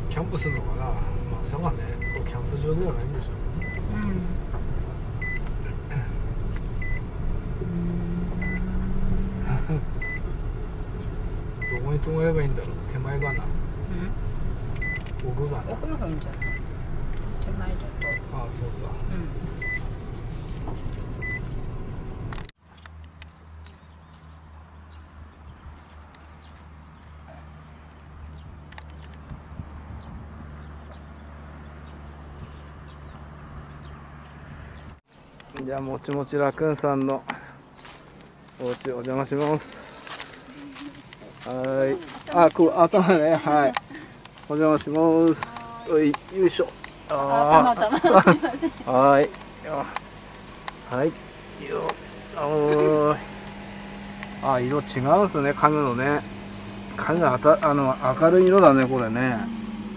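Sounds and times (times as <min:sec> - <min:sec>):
low steady hum: 0:00.0 - 0:30.7, 0:35.6 - 0:59.9
engine low rumble: 0:00.0 - 0:59.9
electronic warning beep: 0:00.4 - 0:00.7, 0:02.0 - 0:02.3, 0:03.6 - 0:03.9, 0:05.2 - 0:05.4, 0:06.8 - 0:07.1, 0:08.4 - 0:08.7, 0:10.0 - 0:10.3, 0:11.6 - 0:11.9, 0:13.2 - 0:13.5, 0:14.8 - 0:15.1, 0:16.4 - 0:16.6, 0:18.0 - 0:18.3, 0:19.6 - 0:19.8, 0:21.2 - 0:21.4
insects droning: 0:22.6 - 0:59.9
tyres rolling over gravel: 0:37.8 - 0:51.1.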